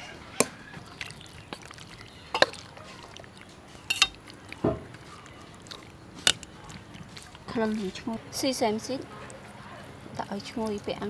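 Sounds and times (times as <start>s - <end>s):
utensils stirring wet food: 0.0s - 11.0s
utensils clinking against bowl: 2.3s - 3.2s, 3.8s - 4.3s.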